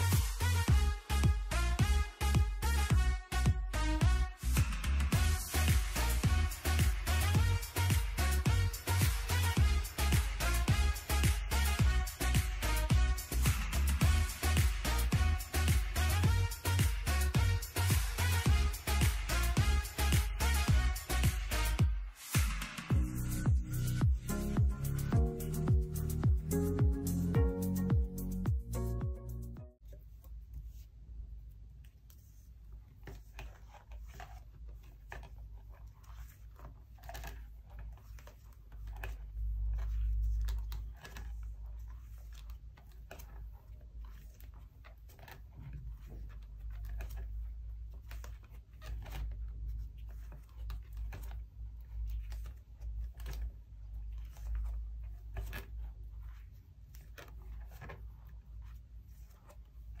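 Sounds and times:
plastic sleeves crinkling: 29.8 - 60.0.

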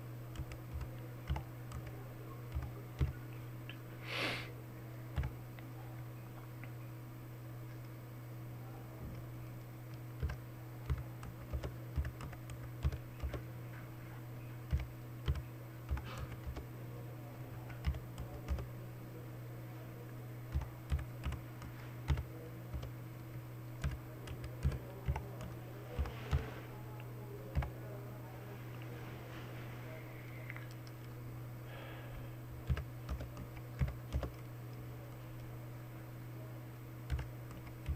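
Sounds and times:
steady low hum: 0.0 - 37.9
typing on computer keyboard: 0.3 - 3.2, 5.1 - 5.4, 9.9 - 13.4, 14.6 - 16.7, 17.6 - 18.7, 20.5 - 23.0, 23.8 - 26.5, 27.5 - 27.8, 32.6 - 34.5, 37.1 - 37.9.

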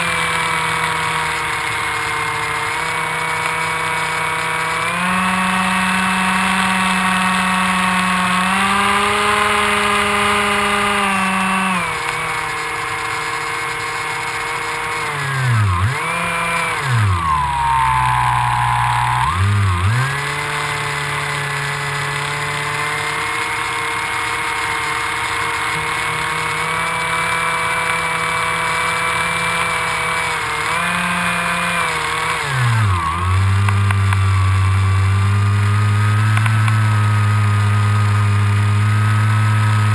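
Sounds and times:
electric motor propeller whine: 0.0 - 39.9.

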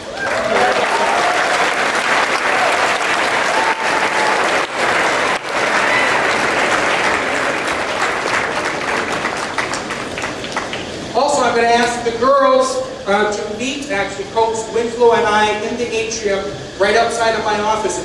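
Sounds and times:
crowd applauding: 0.0 - 11.1.

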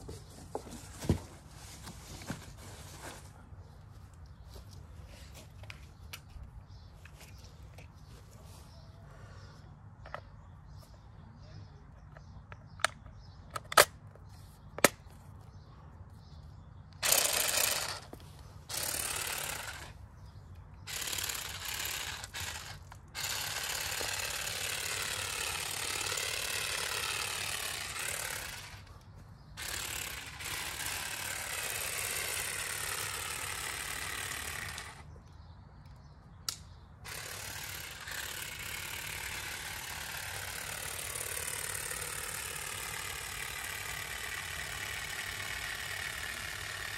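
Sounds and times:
sharp clicks: 33.5 - 37.4.

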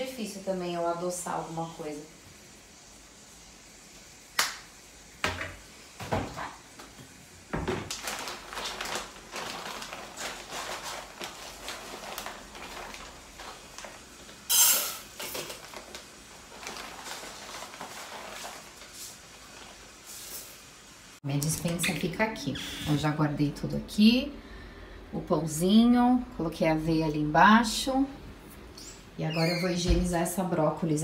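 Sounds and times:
items knocking on counter: 5.2 - 6.6, 7.5 - 8.0
plastic bag rustling: 7.5 - 20.8.

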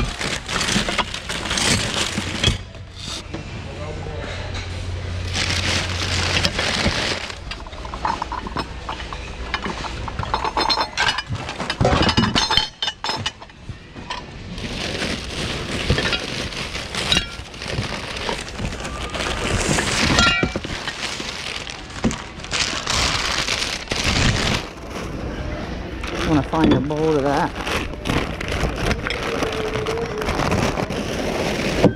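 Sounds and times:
hands rummaging and rustling: 0.0 - 3.2, 5.2 - 13.4, 14.1 - 25.3, 26.0 - 31.9
hard objects clinking together: 0.0 - 3.2, 5.3 - 24.7.

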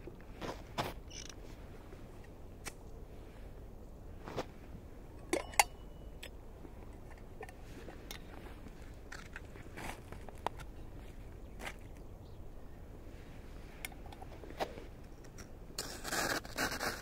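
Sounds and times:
sharp click with thin ring: 5.2 - 6.3
gear clicks and crunches on snow: 6.8 - 12.0, 14.1 - 17.0.

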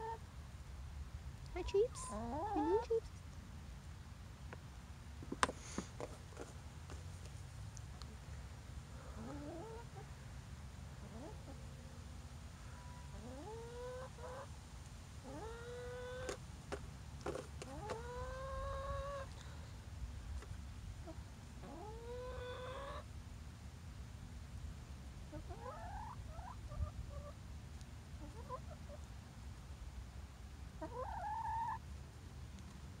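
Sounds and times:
hens calling and clucking: 1.6 - 3.1, 9.0 - 10.1, 11.0 - 11.6, 12.7 - 14.5, 15.2 - 16.4, 17.2 - 19.4, 21.0 - 23.1, 25.3 - 27.4, 28.2 - 29.1, 30.8 - 31.8.

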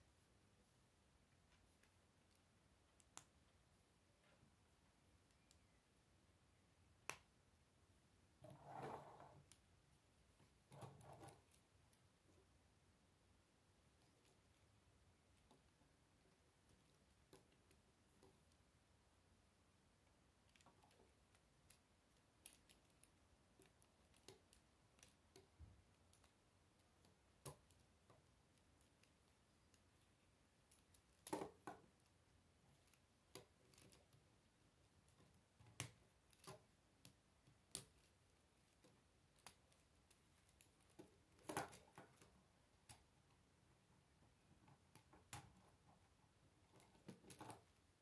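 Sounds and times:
faint plastic clicks: 1.3 - 6.0, 20.0 - 48.0.

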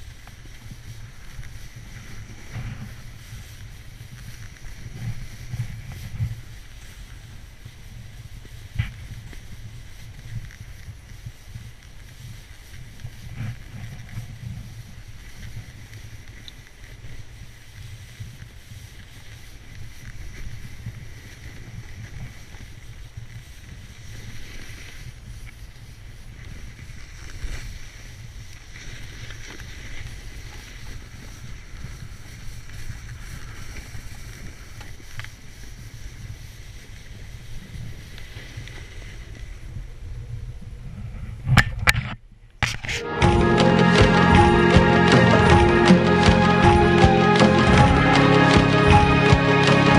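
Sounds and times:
sliding over snow: 0.0 - 39.6
wind on microphone: 0.0 - 43.1.

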